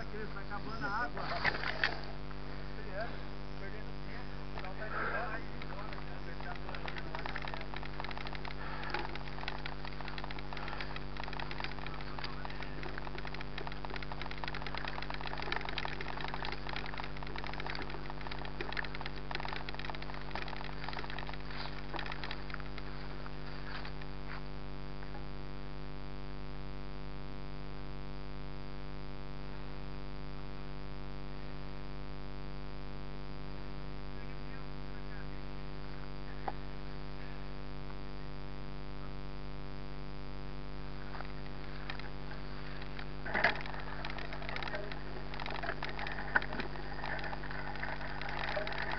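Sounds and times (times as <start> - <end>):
steady hum: 0.0 - 48.9
bike rattling over rough ground: 4.6 - 24.0, 41.0 - 48.9.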